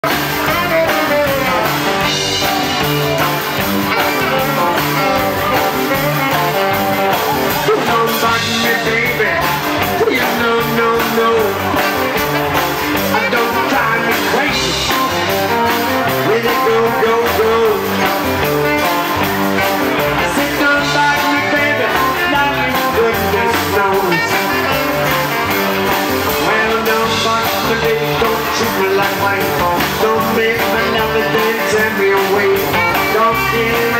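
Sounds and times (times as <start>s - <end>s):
saxophone melody: 0.0s - 17.2s, 17.9s - 26.7s
man singing: 0.0s - 33.9s
rockabilly band playing: 0.0s - 33.9s.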